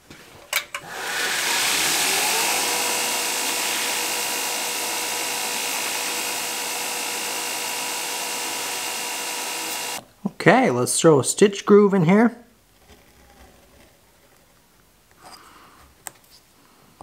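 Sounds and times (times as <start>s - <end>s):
belt grinder motor whine: 0.8s - 10.0s
grinder belt hiss: 0.8s - 10.0s.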